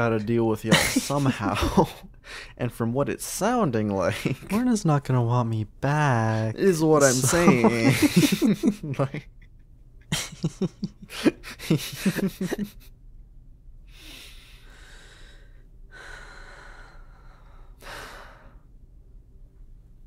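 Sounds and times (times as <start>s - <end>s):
person making vocal sounds: 7.0s - 8.1s
long breaths or sighs: 13.9s - 18.7s.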